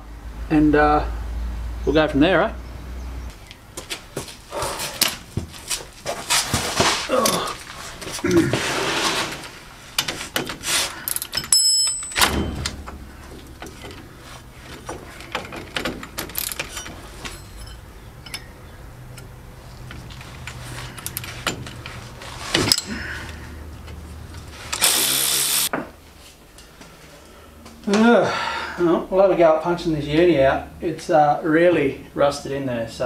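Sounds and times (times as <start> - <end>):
metal clank: 10.0 - 18.6
hand ratchet clicking: 24.6 - 25.7.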